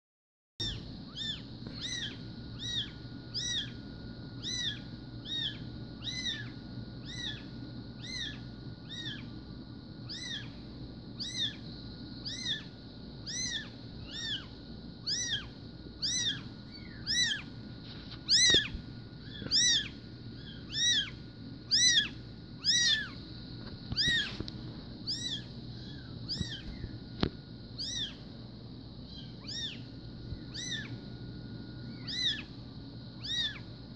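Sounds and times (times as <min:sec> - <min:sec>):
kitten mewing: 0:00.6 - 0:03.8, 0:04.4 - 0:09.3, 0:10.1 - 0:10.5, 0:11.2 - 0:11.6, 0:12.2 - 0:17.5, 0:18.3 - 0:23.2, 0:23.9 - 0:26.8, 0:27.8 - 0:28.2, 0:29.1 - 0:29.9, 0:30.5 - 0:30.9, 0:31.9 - 0:32.5, 0:33.2 - 0:33.7.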